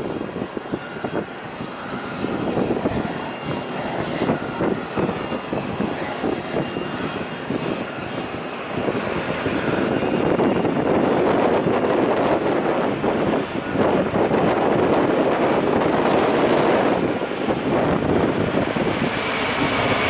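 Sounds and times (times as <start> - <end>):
faint jet engine whine: 0.0 - 20.0
jet engines rumbling: 0.0 - 20.0.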